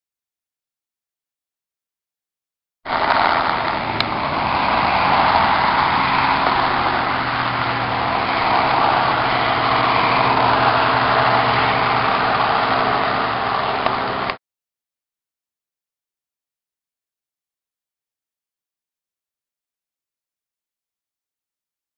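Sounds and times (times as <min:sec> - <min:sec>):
helicopter engine and rotor: 0:02.9 - 0:14.4.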